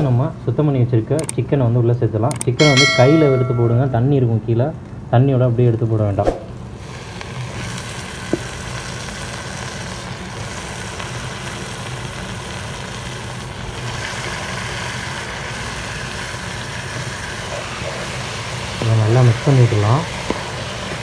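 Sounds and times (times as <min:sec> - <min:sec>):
sharp clink: 0:02.6 - 0:04.1
chicken sizzling in pan: 0:06.7 - 0:21.0.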